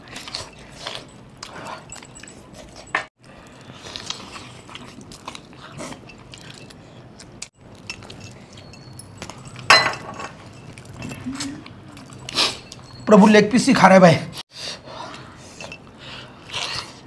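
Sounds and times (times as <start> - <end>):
chewing: 0.0 - 9.7, 10.3 - 13.1
small clicks and clinks: 0.2 - 13.1.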